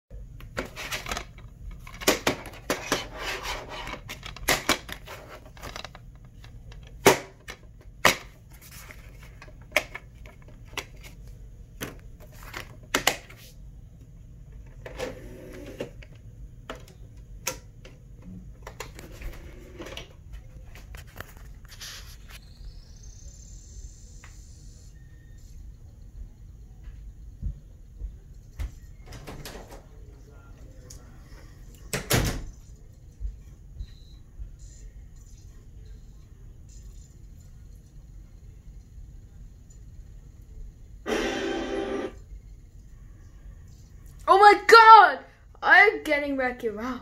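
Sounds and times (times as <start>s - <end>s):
disc player spinning up whine: 41.1s - 42.2s.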